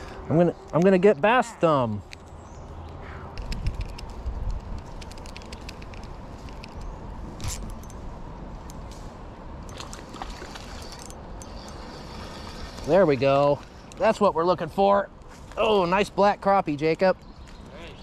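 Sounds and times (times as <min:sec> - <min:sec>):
wind rumble on microphone: 0:03.3 - 0:13.8.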